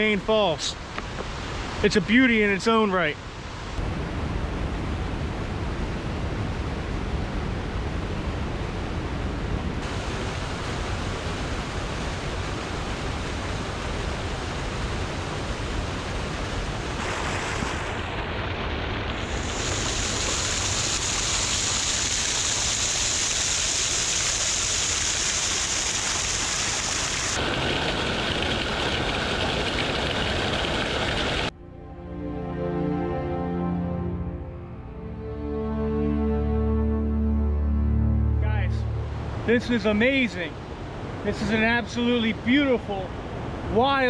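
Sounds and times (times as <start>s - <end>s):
waterfall rushing and splashing: 9.8s - 31.5s, 39.0s - 44.0s.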